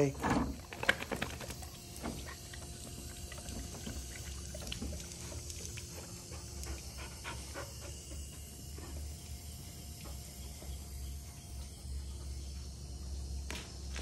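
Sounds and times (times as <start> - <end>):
hose water trickling: 0.0 - 12.5
puppy lapping water: 0.6 - 9.2
puppy panting: 5.2 - 8.6.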